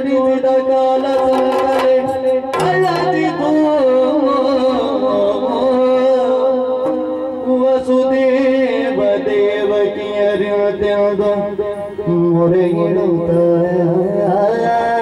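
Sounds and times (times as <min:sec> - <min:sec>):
man singing: 0:00.0 - 0:15.0
drum strokes: 0:00.9 - 0:04.8.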